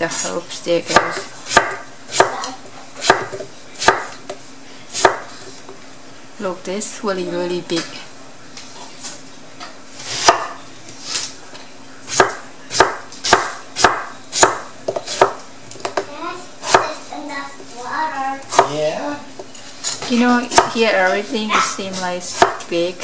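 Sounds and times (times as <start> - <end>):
knife chopping on wooden board: 0.9 - 2.4, 3.0 - 4.4, 5.0 - 5.3, 10.0 - 10.6, 12.1 - 16.1, 16.7 - 16.9, 18.5 - 18.8, 19.9 - 20.8, 21.9 - 22.7.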